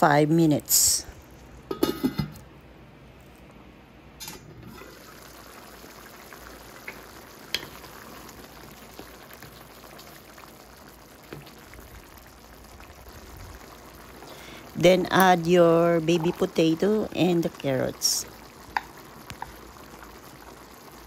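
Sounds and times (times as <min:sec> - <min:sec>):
stew bubbling in a pan: 0:04.5 - 0:21.0.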